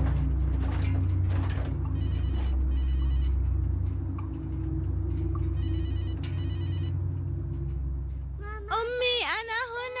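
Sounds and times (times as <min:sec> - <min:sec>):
low steady drone: 0:00.0 - 0:09.9
phone ringing with electronic trill: 0:02.0 - 0:03.4, 0:05.5 - 0:06.9.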